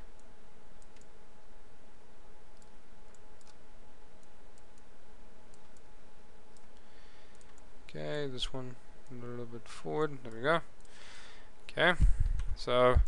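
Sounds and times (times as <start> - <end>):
faint steady hum: 0.0 - 13.0
microphone hiss: 0.0 - 13.0
computer mouse clicks: 0.2 - 1.1, 2.6 - 3.6, 5.5 - 5.9, 6.5 - 7.7.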